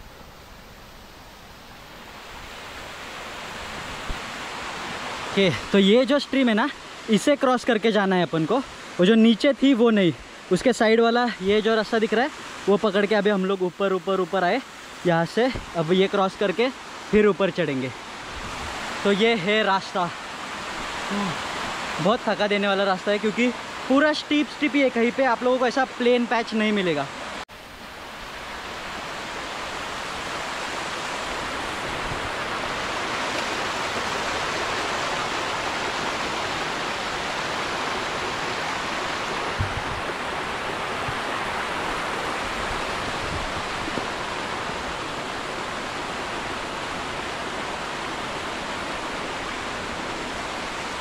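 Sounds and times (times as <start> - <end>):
mountain stream rushing: 0.0 - 51.0.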